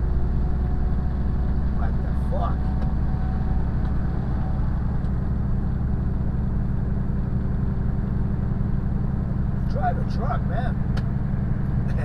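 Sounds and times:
tyre and road noise: 0.0 - 9.8
diesel truck engine droning: 0.0 - 12.0.

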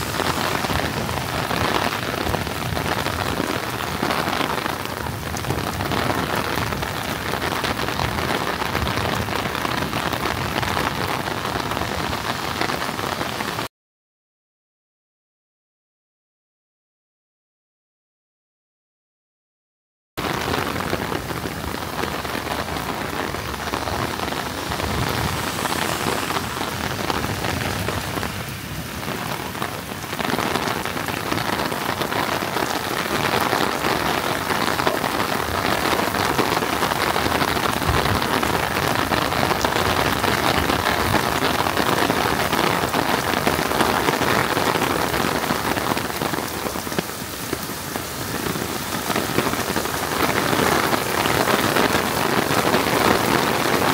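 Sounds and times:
heavy rain falling: 0.0 - 13.7, 20.2 - 53.9.

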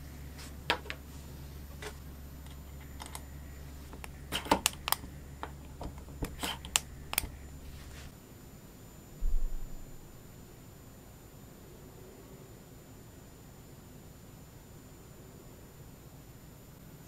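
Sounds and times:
electric screwdriver clicks: 2.9 - 7.5.

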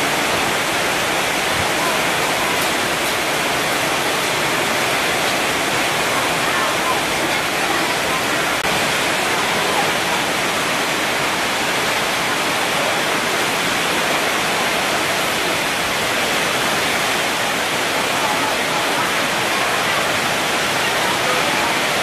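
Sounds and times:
rain on a metal roof: 0.0 - 22.0.

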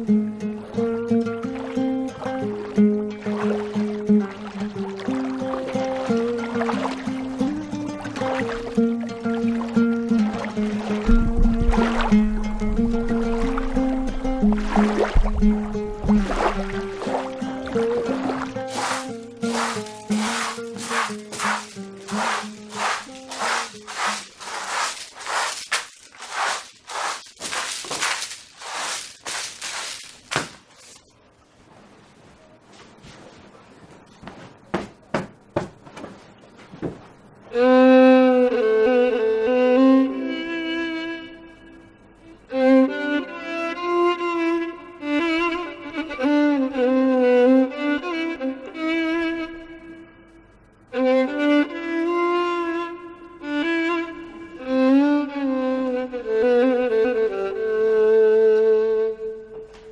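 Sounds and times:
scratchy brushing strokes: 18.2 - 31.0
violin slow melody: 37.5 - 59.9.

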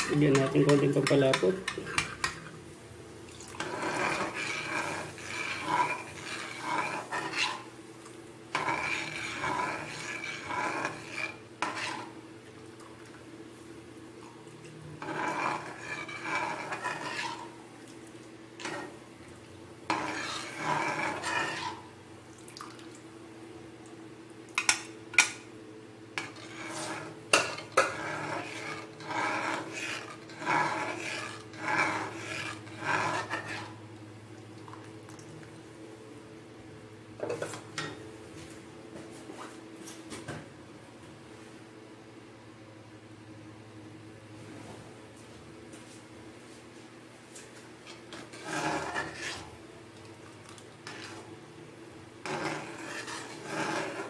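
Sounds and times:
spatula scraping a wok: 0.0 - 2.5, 3.6 - 7.8, 8.5 - 12.2, 15.0 - 17.7, 18.6 - 19.0, 19.8 - 22.0, 26.2 - 33.9, 47.9 - 49.6, 50.8 - 51.3, 52.2 - 54.0.

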